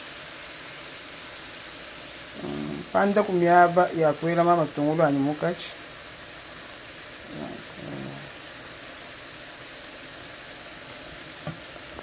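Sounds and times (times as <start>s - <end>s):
fish sizzling in oil: 0.0s - 12.0s.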